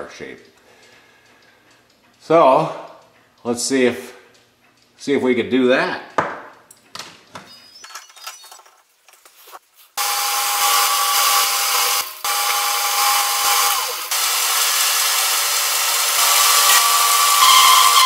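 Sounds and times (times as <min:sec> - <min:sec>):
lathe cutting steel: 0:10.0 - 0:18.0.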